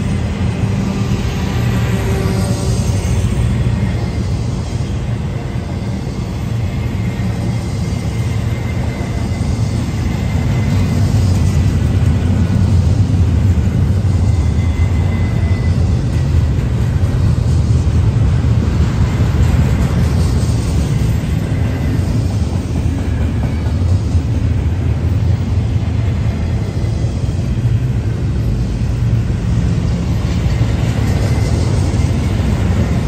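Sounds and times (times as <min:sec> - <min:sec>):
freight train rumbling past: 0:00.0 - 0:33.0.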